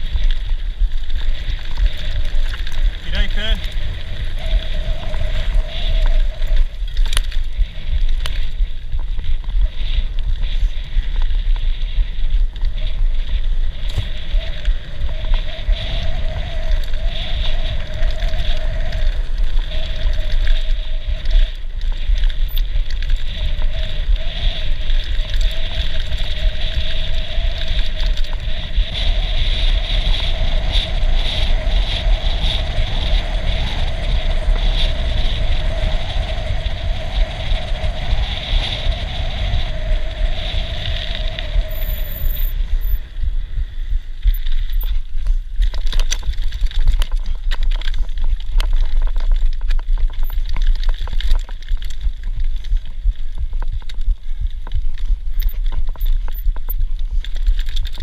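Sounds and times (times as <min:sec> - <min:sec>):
bike tyre and frame noise: 0:00.0 - 0:58.0
wind buffeting microphone: 0:00.0 - 0:58.0
steady whine: 0:37.4 - 0:46.2.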